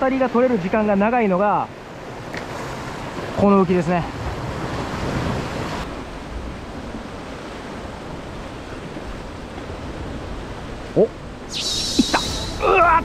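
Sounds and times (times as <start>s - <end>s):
sea surf on rocky shore: 0.0s - 13.0s
wind on microphone: 4.3s - 13.0s.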